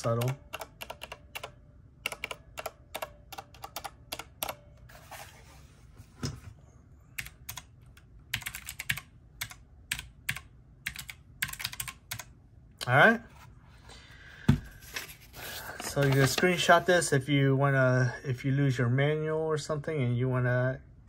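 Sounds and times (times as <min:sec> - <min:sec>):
typing on mechanical keyboard: 0:00.0 - 0:04.6, 0:07.2 - 0:12.3.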